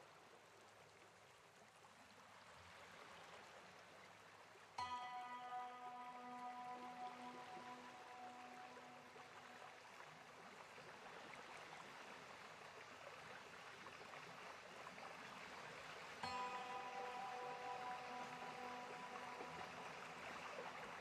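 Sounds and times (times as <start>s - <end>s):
faint steady hiss: 0.0s - 21.0s
background music chord: 4.8s - 10.0s, 16.2s - 21.0s.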